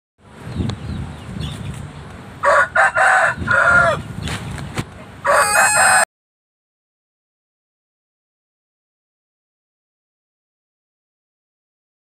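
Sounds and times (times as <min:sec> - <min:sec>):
rooster crowing: 0:02.4 - 0:04.0, 0:05.2 - 0:06.1.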